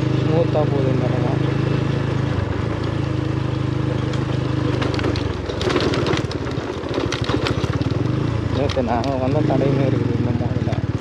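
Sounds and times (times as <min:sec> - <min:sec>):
motorbike engine running: 0:00.0 - 0:11.0
clicks and rattles on stony ground: 0:02.4 - 0:11.0.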